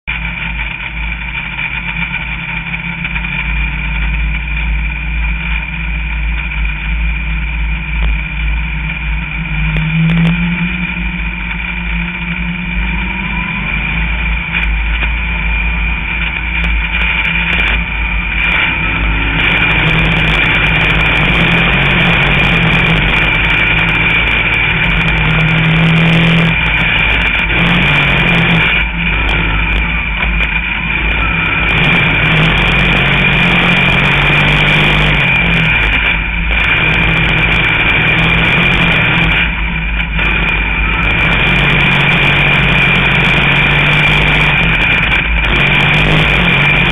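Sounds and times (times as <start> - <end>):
race car engine revving: 0.0 - 46.9.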